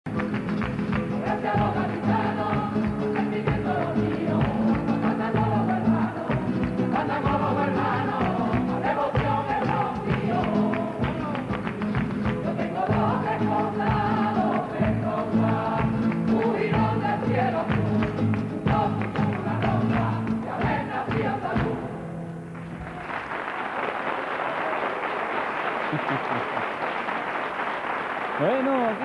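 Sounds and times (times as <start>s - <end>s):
rhythmic hand clapping: 0.1s - 21.8s, 22.6s - 29.0s
strummed guitars: 0.1s - 23.0s
women singing: 1.2s - 11.7s, 12.3s - 22.1s.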